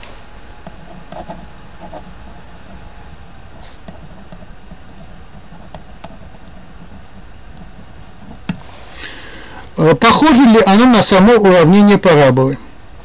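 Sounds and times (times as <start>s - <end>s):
steady background hiss: 0.0s - 13.0s
pen scratching on paper: 0.8s - 2.9s, 3.5s - 8.5s.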